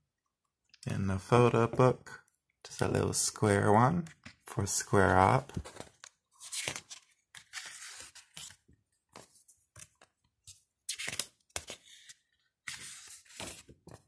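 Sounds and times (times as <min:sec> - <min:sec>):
book pages turning: 0:05.0 - 0:14.0.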